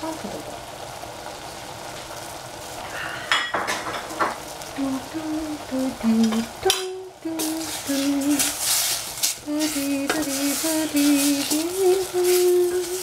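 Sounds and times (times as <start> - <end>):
vegetables sizzling in oil: 0.0 - 13.0
person humming: 4.7 - 8.6, 9.4 - 13.0.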